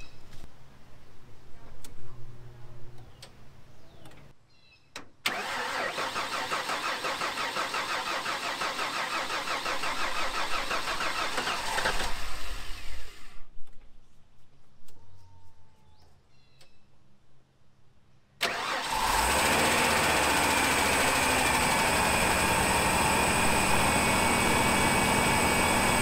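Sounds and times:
click: 4.0s - 4.3s
engine cranking on starter: 5.3s - 13.4s, 18.4s - 26.0s
engine running: 18.4s - 26.0s.

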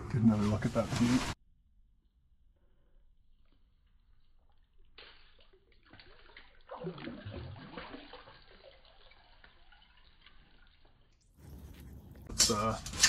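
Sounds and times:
water splashing and sloshing: 3.5s - 13.0s.

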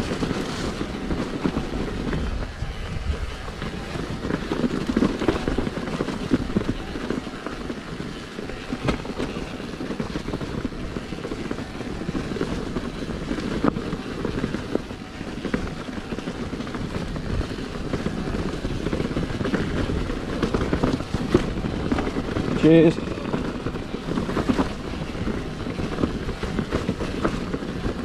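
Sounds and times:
bike rattles and knocks: 0.0s - 28.0s
tyres rumbling on stony ground: 0.0s - 28.0s.

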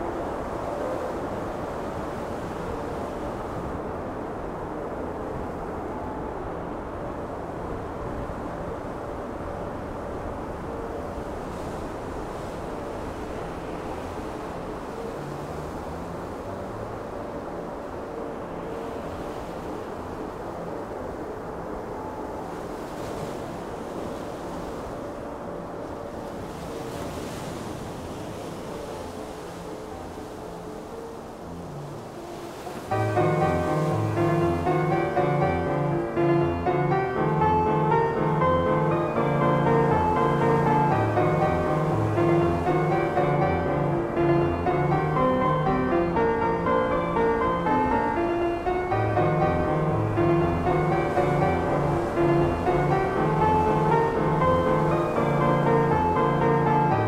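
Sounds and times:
sea wash: 0.0s - 57.0s
windy hiss: 0.0s - 57.0s
ship engine rumble: 23.7s - 57.0s.

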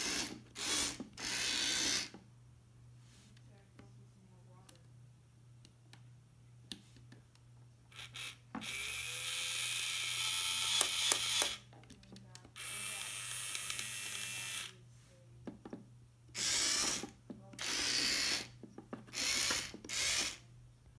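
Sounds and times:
toy bulldozer motor whirring: 0.0s - 2.2s, 7.9s - 11.7s, 12.6s - 14.8s, 16.3s - 20.4s.

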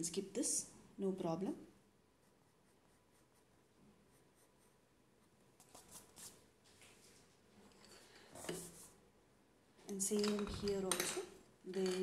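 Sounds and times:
pencil scratching on paper: 2.1s - 6.4s.

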